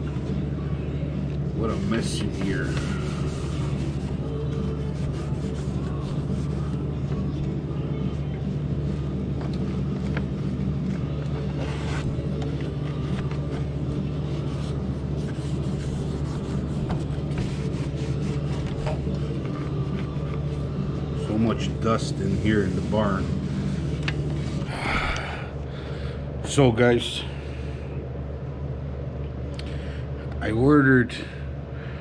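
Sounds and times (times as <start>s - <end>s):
low machine hum: 0.0s - 32.0s
towel rubbing over plastic and metal: 1.6s - 7.5s, 8.1s - 24.7s.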